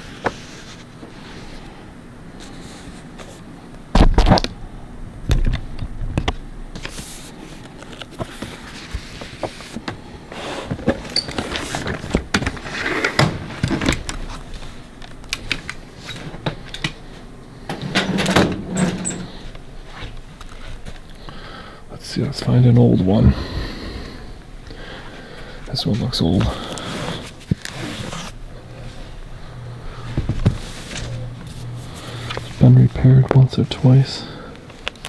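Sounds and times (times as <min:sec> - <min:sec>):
pages rustling: 0:26.0 - 0:29.0
knocks and clicks of books: 0:30.1 - 0:31.1.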